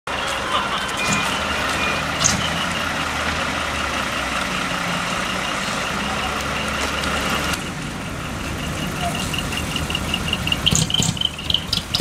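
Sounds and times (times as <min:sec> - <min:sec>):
diesel truck engine running: 0:00.1 - 0:12.0
quick high-pitched beeps: 0:00.9 - 0:02.6.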